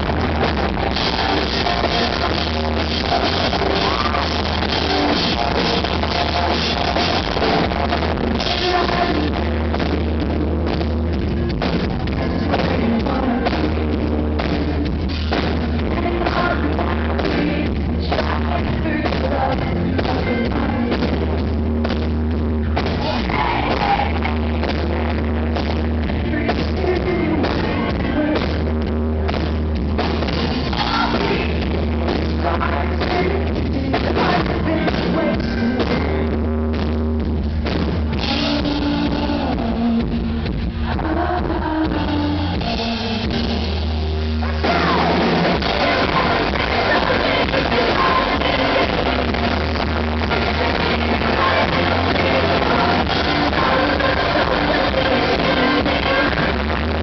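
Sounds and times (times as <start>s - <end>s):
drums: 0.0s - 57.0s
rock band playing live: 0.0s - 57.0s
woman singing: 8.0s - 10.8s, 12.4s - 14.8s, 15.8s - 21.4s, 23.0s - 28.7s, 30.6s - 36.3s, 40.9s - 43.3s, 44.4s - 57.0s.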